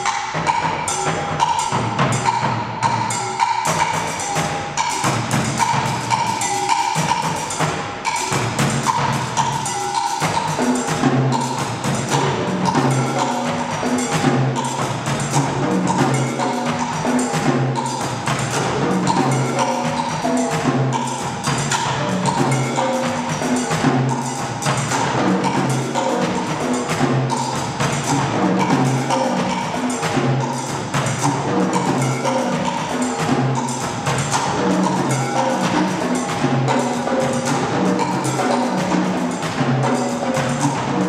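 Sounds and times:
fast tom-tom drumming: 3.7 - 41.0.

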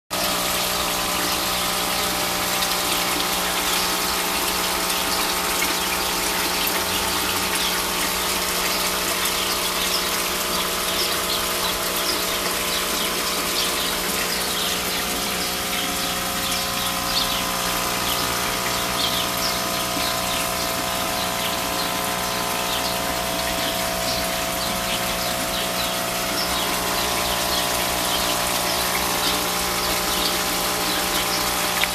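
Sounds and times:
gushing splashing water: 0.1 - 31.9
water pump humming: 0.1 - 31.9.

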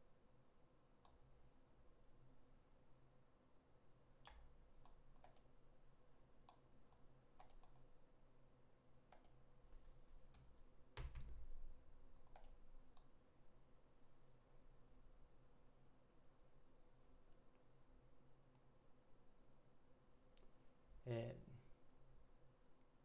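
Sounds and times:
faint steady hum: 0.0 - 23.0
computer mouse clicks: 4.2 - 5.6, 6.4 - 7.9, 9.1 - 11.4, 12.2 - 13.1.

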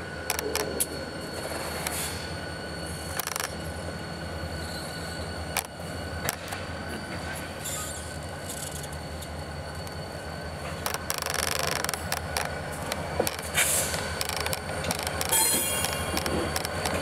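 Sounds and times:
diesel locomotive engine rumbling: 0.0 - 17.0
wheels clicking on rails: 0.2 - 2.2, 3.1 - 3.6, 5.5 - 10.0, 10.6 - 17.0
high wheel squeal: 0.9 - 17.0.

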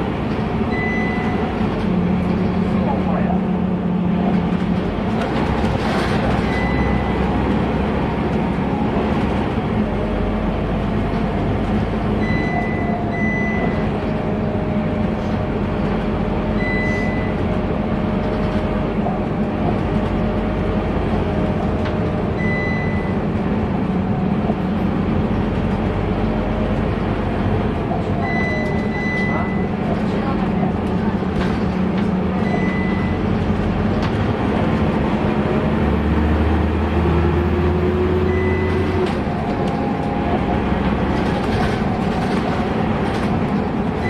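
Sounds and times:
bus engine cruising: 0.0 - 44.0
road noise: 0.0 - 44.0
short high beeps: 0.7 - 1.5, 12.2 - 13.8, 16.6 - 17.4, 22.4 - 23.2, 28.2 - 29.7.

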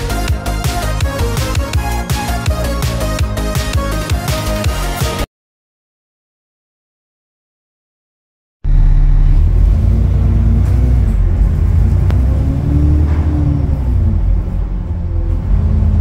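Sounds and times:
bus engine droning: 8.6 - 16.0.

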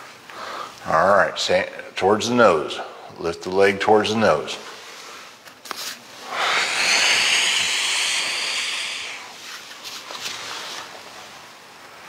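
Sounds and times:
long hissing breath out: 6.2 - 9.4.

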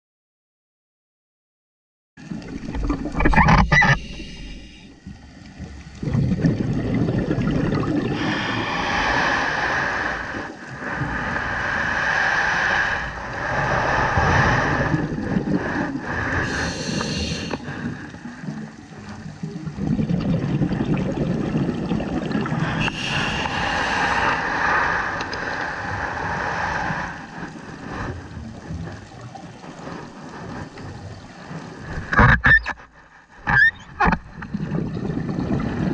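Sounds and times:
bubbling gurgling exhalations: 2.2 - 4.8, 5.6 - 31.2, 34.2 - 35.9
hissing breaths through regulator: 3.6 - 5.0, 8.1 - 18.2, 22.6 - 28.1.

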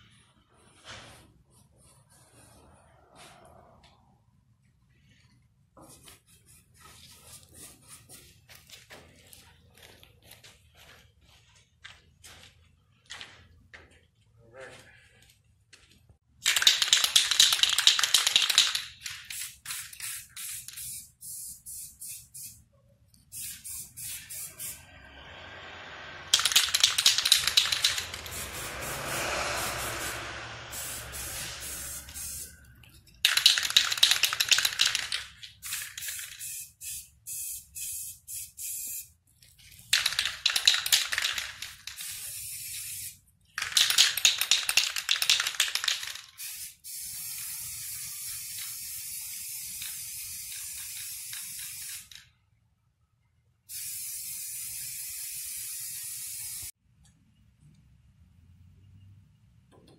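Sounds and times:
spray paint can hissing: 6.0 - 8.4, 16.4 - 22.6, 23.2 - 25.0, 26.3 - 39.1, 39.7 - 52.2, 53.7 - 56.7.

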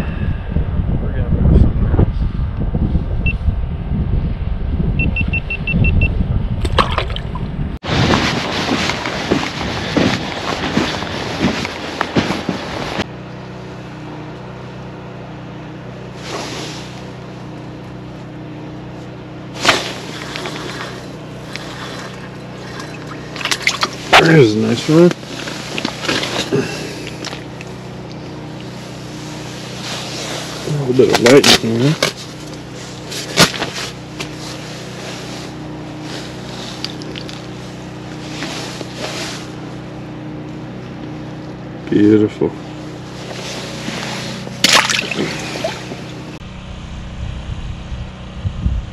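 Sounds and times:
wind buffeting microphone: 0.0 - 11.8, 47.0 - 48.9
low engine-like hum: 0.0 - 48.9
jacket sleeve rustling: 7.9 - 13.1, 25.2 - 30.8, 31.5 - 39.7, 42.9 - 44.6
crunching knocks: 8.0 - 12.7.

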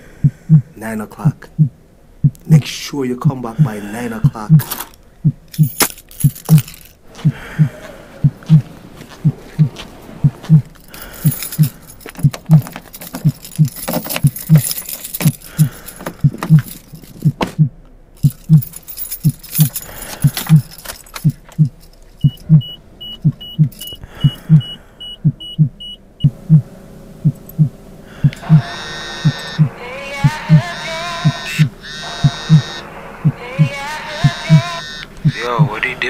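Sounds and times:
heartbeat thumping: 0.2 - 0.7, 1.5 - 4.6, 5.2 - 35.8
car keys jangling: 4.6 - 7.0, 8.4 - 17.4, 18.2 - 24.5, 27.4 - 27.6
high electronic beeps: 22.2 - 26.3, 28.4 - 32.9, 33.6 - 36.0.

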